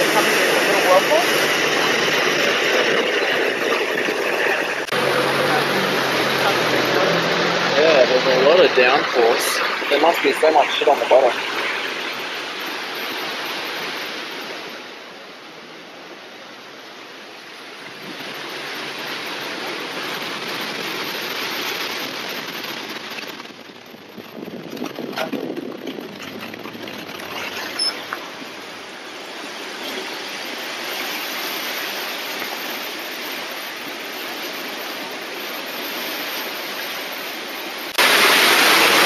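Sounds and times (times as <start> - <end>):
floodwater rushing: 0.0 - 39.0
bumps and crackles: 17.9 - 28.9.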